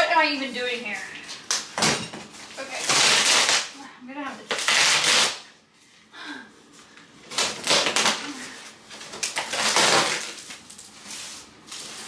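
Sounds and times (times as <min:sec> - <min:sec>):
cardboard tearing: 0:02.6 - 0:03.8, 0:04.4 - 0:05.5, 0:07.3 - 0:08.4, 0:09.0 - 0:12.0.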